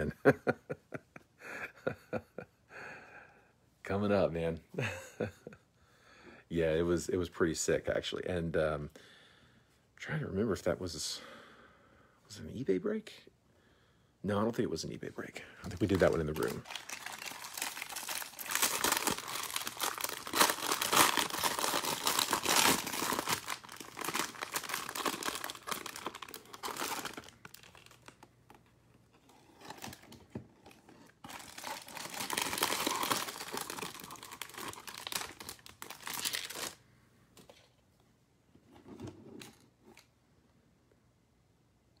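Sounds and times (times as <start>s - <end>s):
plastic wrappers tearing and crinkling: 15.7s - 28.3s, 29.2s - 36.8s.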